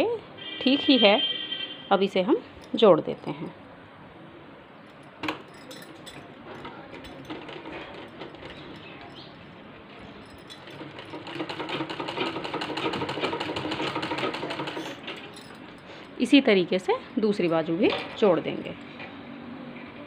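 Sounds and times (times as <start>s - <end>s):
sewing machine running: 10.6s - 15.3s.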